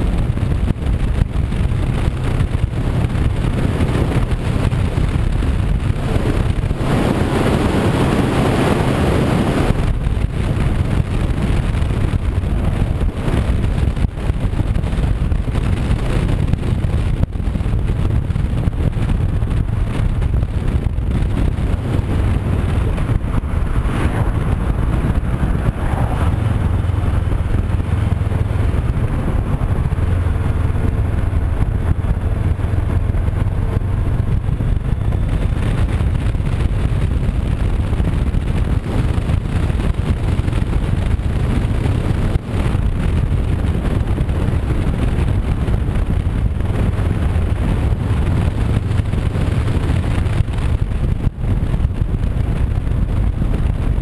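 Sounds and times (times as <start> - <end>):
motorcycle engine running: 0.0 - 54.0
wind rushing over microphone: 0.0 - 54.0.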